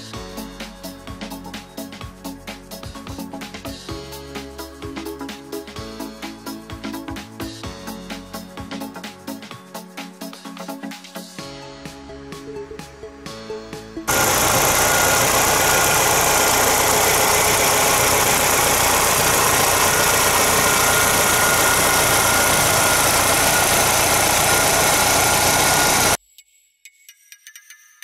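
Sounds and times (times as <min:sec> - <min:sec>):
pickup engine idling: 0:14.1 - 0:26.2.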